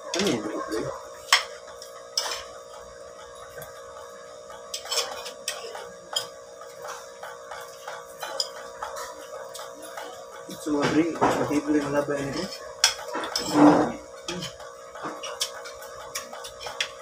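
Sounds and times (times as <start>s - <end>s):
steady background hum: 0.0s - 17.0s
cutlery clinking on ceramic plate: 4.6s - 11.6s, 12.2s - 17.0s.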